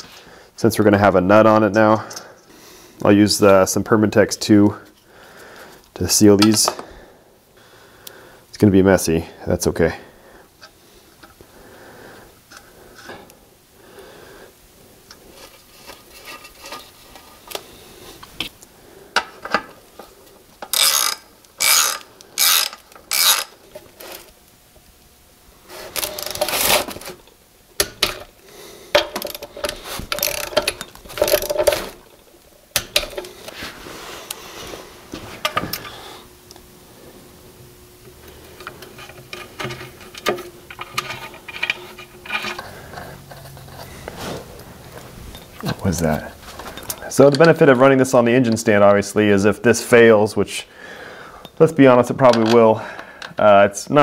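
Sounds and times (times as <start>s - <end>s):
socket ratchet clicking: 20.6s - 23.6s.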